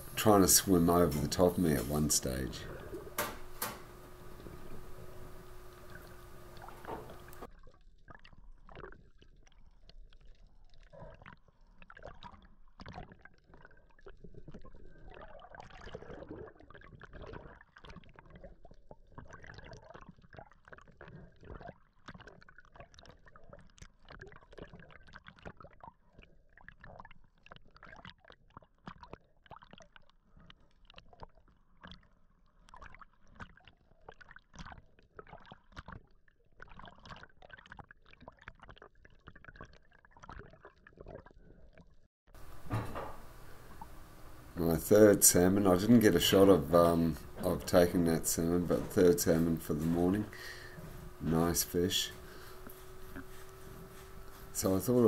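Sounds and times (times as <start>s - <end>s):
steady hiss: 0.0s - 7.5s
low water rumble: 0.0s - 8.7s, 42.4s - 55.0s
underwater clicks and crackles: 0.2s - 55.0s.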